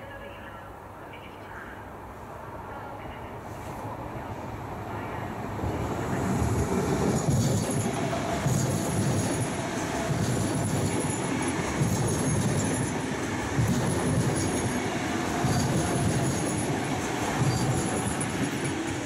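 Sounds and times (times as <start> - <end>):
electric train rolling past: 2.5 - 19.0
faint high wheel squeal: 17.4 - 18.4.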